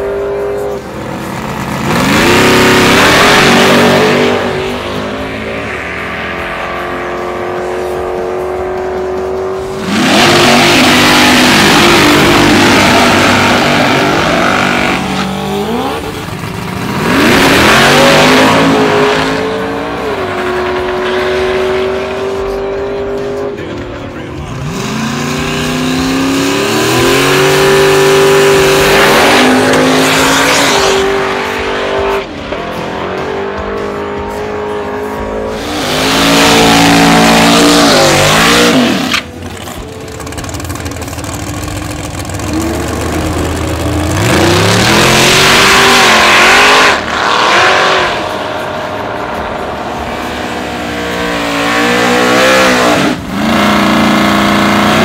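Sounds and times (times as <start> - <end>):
racing car engines revving: 0.0 - 55.0
tires spinning: 8.8 - 22.5, 35.5 - 55.0.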